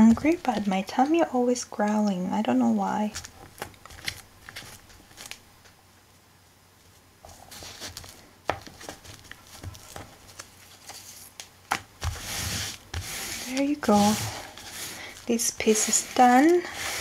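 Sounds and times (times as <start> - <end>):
soft rustling of fabric and paper: 3.0 - 5.7, 6.8 - 17.0.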